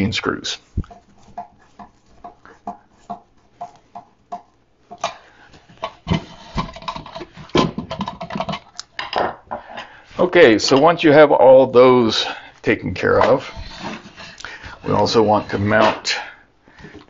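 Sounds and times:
tools clattering on wooden workbench: 5.8 - 9.7.

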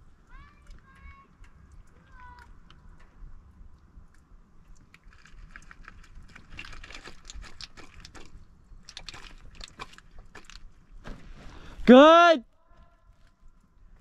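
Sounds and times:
pebbles clicking together: 3.8 - 10.8.

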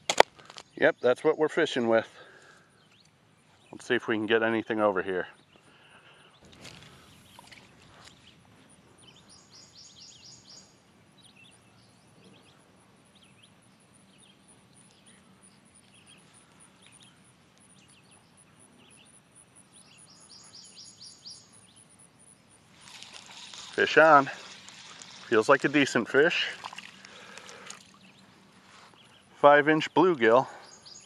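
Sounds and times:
bird chirps: 5.3 - 21.9, 30.5 - 31.0
high pulsing insect call: 5.3 - 31.0.

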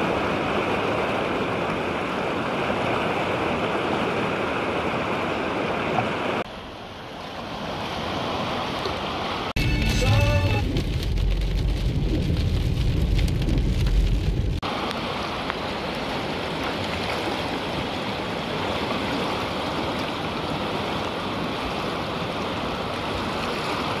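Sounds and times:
tyres rumbling on wet road: 9.6 - 15.9.

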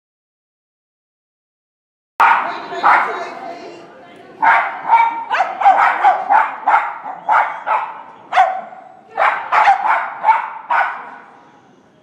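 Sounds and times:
dog barking in echoing hall: 2.2 - 3.4, 4.4 - 11.4.

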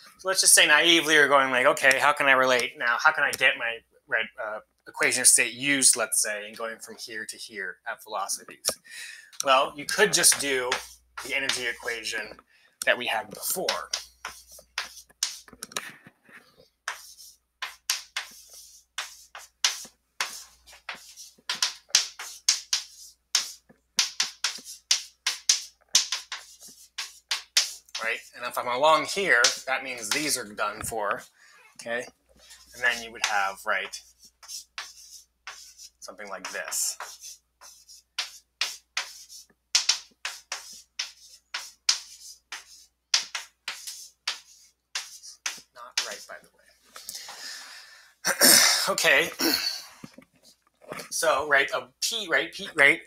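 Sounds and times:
chalk tapping and scratching: 9.4 - 12.4, 13.1 - 47.4.

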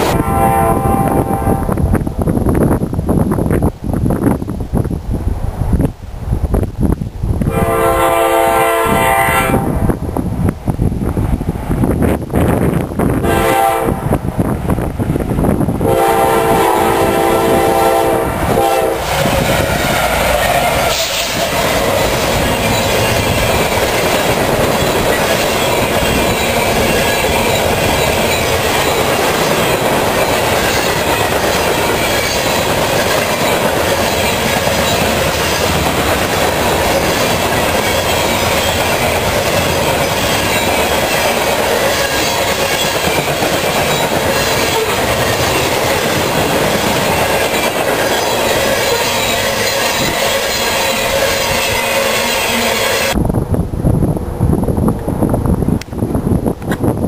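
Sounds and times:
train horn blast: 0.0 - 1.8, 7.4 - 9.9, 13.2 - 14.2, 15.8 - 21.7
freight cars rumbling on rails: 0.0 - 57.0.

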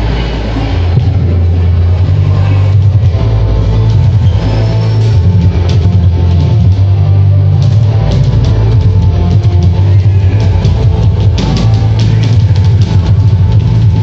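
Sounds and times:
fast rock song with heavy drums: 7.6 - 14.0.

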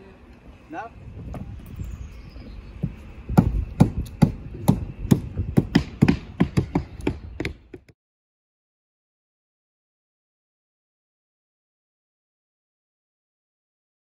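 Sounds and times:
footsteps on hollow roof: 2.8 - 8.0.

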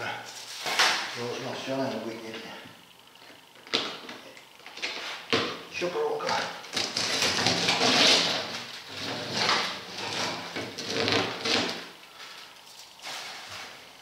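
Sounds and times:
wire scraping out of rubber: 6.7 - 11.9.

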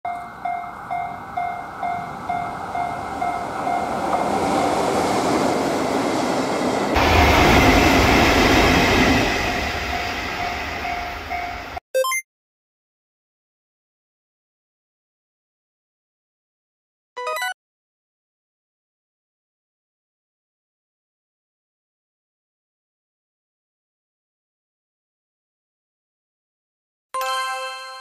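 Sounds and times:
level-crossing alarm dings: 0.1 - 5.0, 9.8 - 12.1
train passing rail rumble: 0.1 - 11.8.

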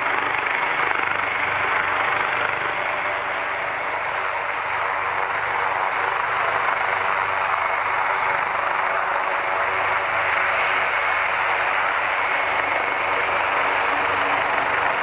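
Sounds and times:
jet airliner engines running: 0.0 - 15.0.

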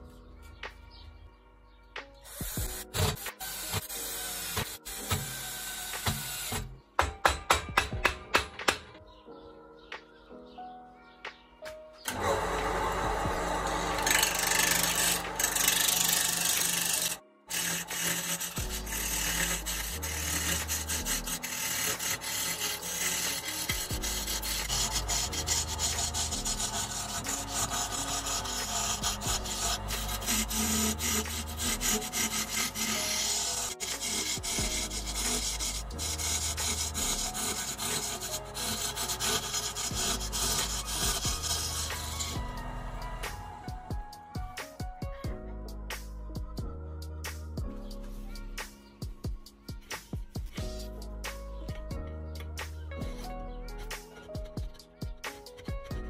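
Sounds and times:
lathe gouge scraping wood: 2.3 - 6.6, 12.1 - 43.6.

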